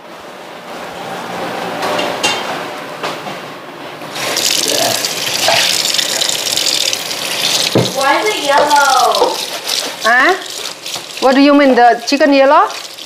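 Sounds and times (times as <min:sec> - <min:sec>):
tap water running: 0:04.1 - 0:13.0.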